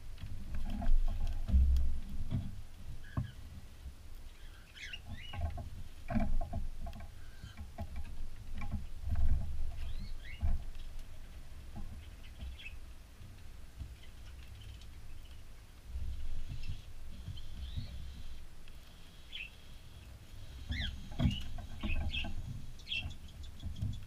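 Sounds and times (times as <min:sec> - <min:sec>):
faint bird chirps: 0:04.2 - 0:05.5, 0:07.2 - 0:07.7, 0:16.2 - 0:18.4, 0:19.0 - 0:24.0.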